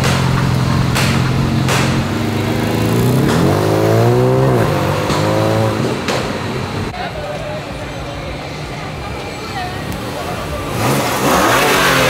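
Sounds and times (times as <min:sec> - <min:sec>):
car exhaust revving: 0:00.0 - 0:07.0, 0:09.9 - 0:12.0.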